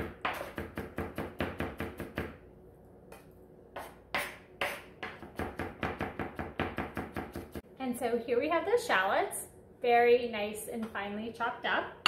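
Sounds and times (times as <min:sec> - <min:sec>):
knife chopping on cutting board: 0:00.0 - 0:02.4, 0:03.1 - 0:07.6.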